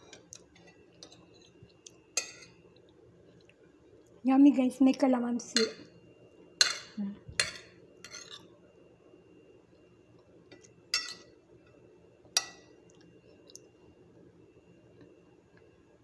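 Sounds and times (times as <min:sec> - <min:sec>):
metal utensil clinking on plate: 0:11.0 - 0:11.3.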